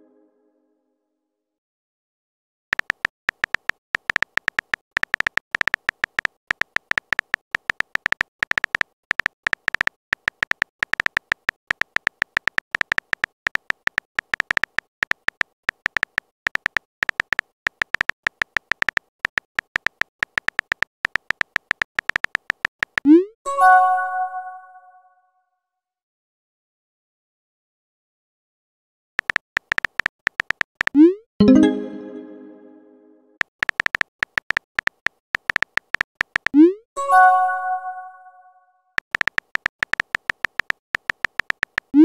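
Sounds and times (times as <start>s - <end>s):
phone keyboard typing taps: 2.7s - 23.1s, 29.2s - 31.2s, 33.4s - 36.6s, 39.0s - 42.0s.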